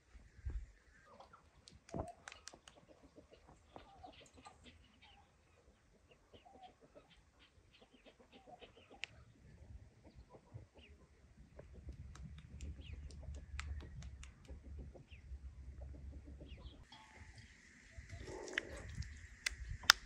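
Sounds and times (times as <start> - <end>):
chickens clucking: 1.0 - 20.0
light ticks: 12.0 - 14.6.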